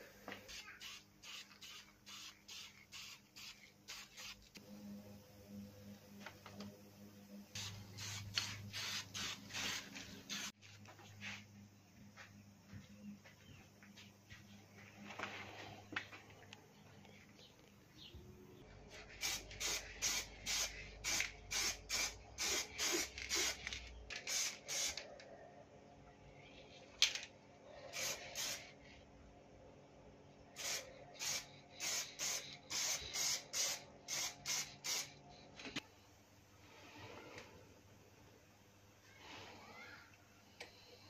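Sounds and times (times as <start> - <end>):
spray can spraying in bursts: 0.5 - 4.6, 7.5 - 10.6, 19.0 - 25.0, 28.0 - 28.7, 30.6 - 35.2.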